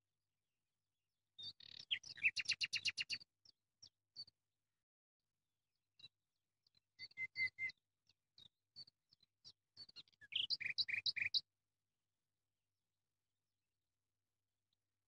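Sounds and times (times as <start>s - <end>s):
small bird chirping: 1.4s - 4.4s, 6.0s - 11.5s.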